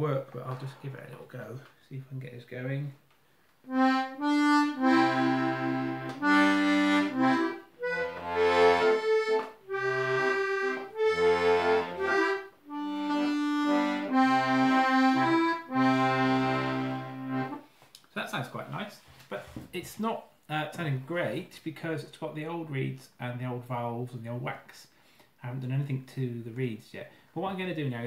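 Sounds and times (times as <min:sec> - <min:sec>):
button accordion playing a tune: 0:03.7 - 0:17.6.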